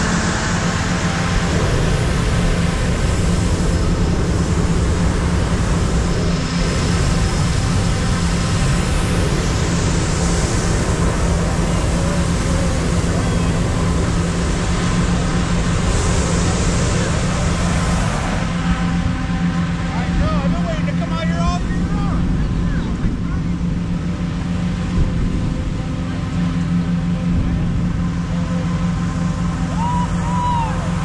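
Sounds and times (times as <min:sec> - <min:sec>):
propane burner hissing: 0:00.0 - 0:22.8
inflator fan humming: 0:00.0 - 0:31.0.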